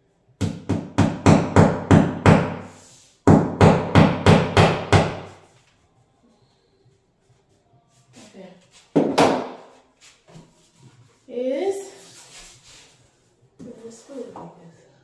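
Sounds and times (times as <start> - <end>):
hammer driving a nail: 3.3 - 5.3.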